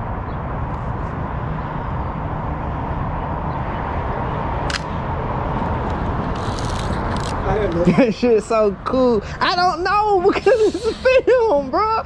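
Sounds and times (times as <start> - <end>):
camera shutter click: 4.7 - 4.9, 6.4 - 7.4.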